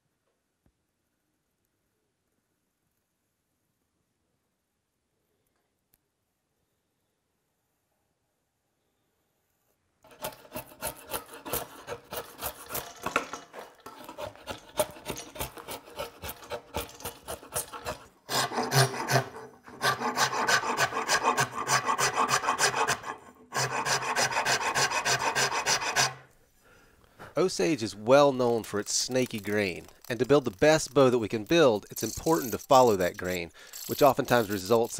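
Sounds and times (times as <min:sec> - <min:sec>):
rasp scraping wood: 0:10.1 - 0:26.3, 0:28.4 - 0:34.9.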